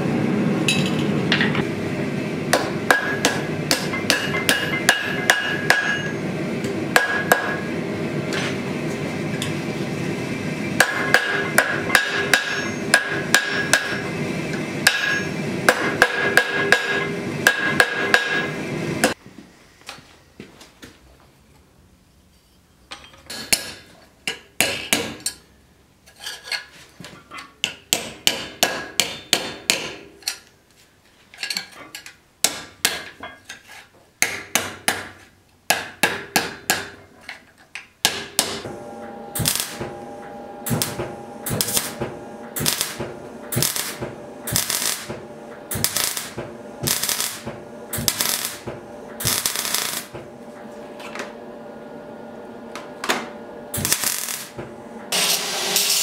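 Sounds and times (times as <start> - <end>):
hammer striking steel on anvil: 2.5 - 7.7, 10.8 - 14.1, 14.8 - 19.2, 23.0 - 25.4, 27.6 - 30.2, 35.7 - 37.0, 38.0 - 50.2.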